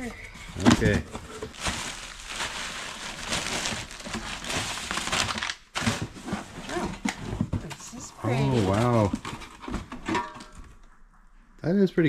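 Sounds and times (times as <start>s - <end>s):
plastic bag crinkling: 0.5s - 6.2s.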